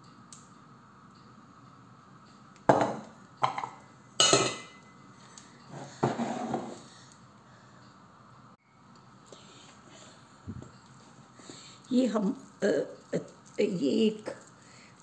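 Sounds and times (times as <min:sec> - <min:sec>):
kitchenware clattering on counter: 0:02.7 - 0:04.8.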